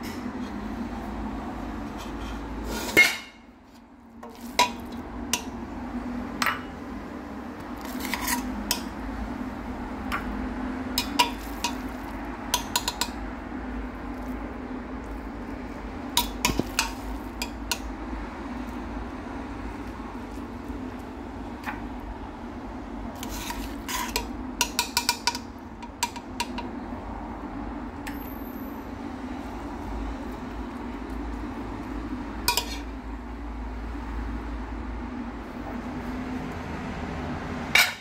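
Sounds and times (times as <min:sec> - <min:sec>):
metal spoon scraping pot: 0:01.9 - 0:03.4, 0:07.8 - 0:09.0, 0:11.0 - 0:13.2, 0:23.2 - 0:26.2, 0:32.4 - 0:32.9, 0:37.8 - 0:38.0.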